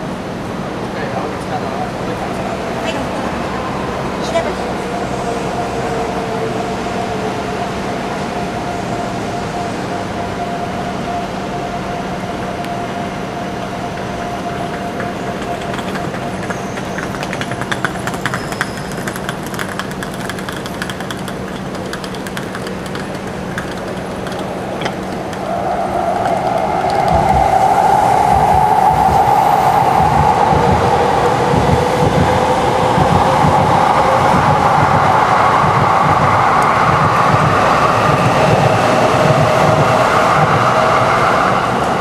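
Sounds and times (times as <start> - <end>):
city din: 11.2 - 40.0
shoes clicking on paving: 14.4 - 25.5.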